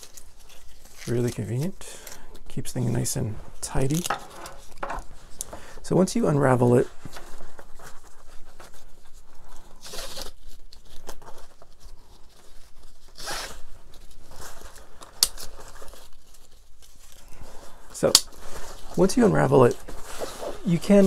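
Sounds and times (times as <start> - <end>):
nylon straps rustling: 0.0 - 5.6, 6.9 - 21.0
velcro ripping: 13.0 - 17.1.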